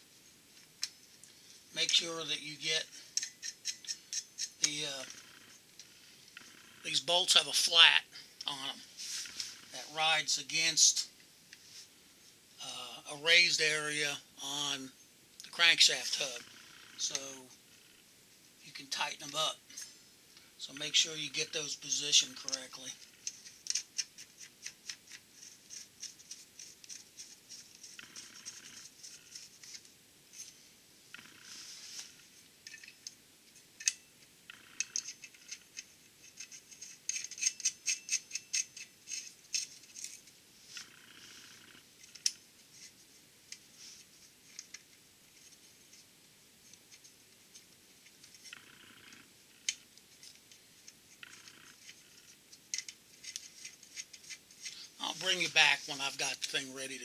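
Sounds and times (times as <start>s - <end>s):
bolts and nuts clicking and rattling: 0.6s - 5.4s, 20.8s - 30.6s, 32.6s - 40.4s, 46.6s - 57.0s.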